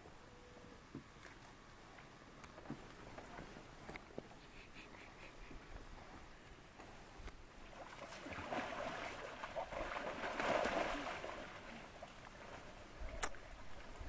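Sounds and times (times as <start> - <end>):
river water sloshing and splashing: 5.9 - 14.0.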